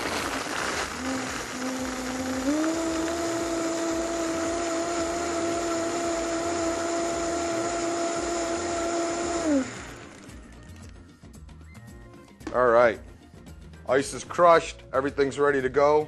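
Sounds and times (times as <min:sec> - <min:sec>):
blender crushing ice: 0:00.0 - 0:10.9.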